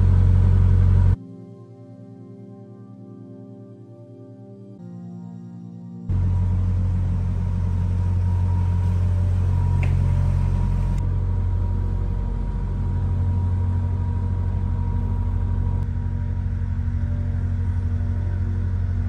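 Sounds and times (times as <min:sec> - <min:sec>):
boat engine rumbling: 0:00.0 - 0:01.2, 0:06.1 - 0:19.0.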